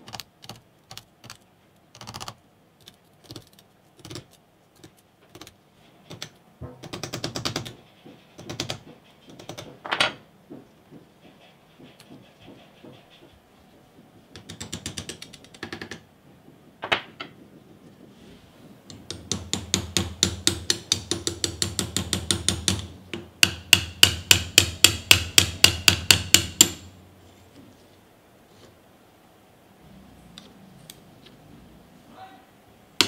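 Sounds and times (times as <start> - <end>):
hammer tapping metal punch: 18.9 - 26.9.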